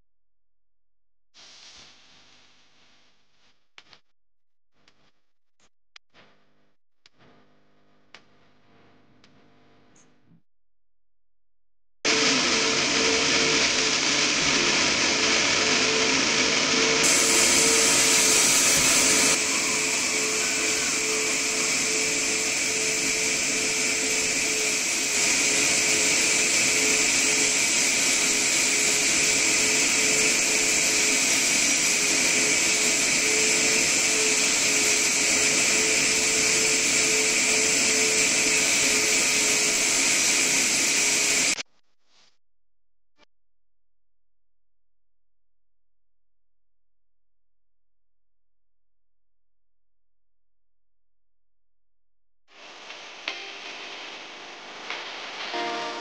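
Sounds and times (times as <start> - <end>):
vacuum cleaner running: 12.1 - 41.6, 52.5 - 56.0
suction hiss: 17.0 - 41.6.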